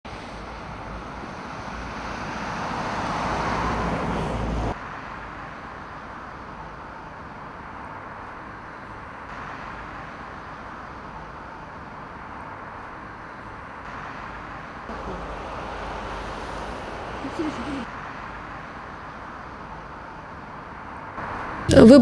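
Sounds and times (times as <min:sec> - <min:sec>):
traffic hum: 0:00.0 - 0:22.0
vehicle passing: 0:00.1 - 0:05.4, 0:13.2 - 0:20.2.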